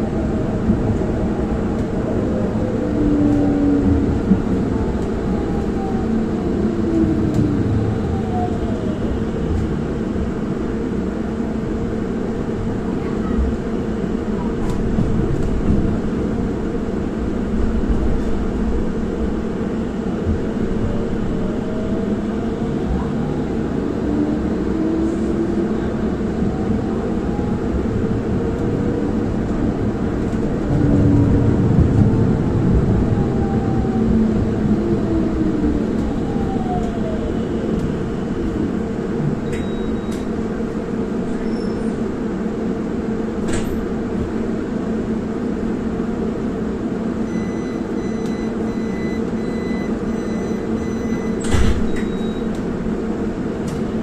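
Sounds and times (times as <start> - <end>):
tram wheels rumbling on rails: 0.0 - 54.0.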